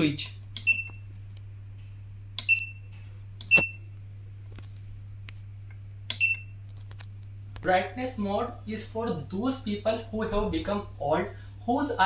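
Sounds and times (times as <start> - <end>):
steady low hum: 0.0 - 12.0
button clicks: 3.4 - 3.8.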